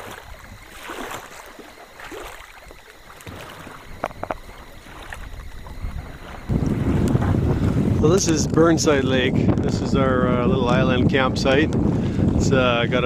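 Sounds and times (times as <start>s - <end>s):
paddle swishing through water: 0.0s - 9.3s.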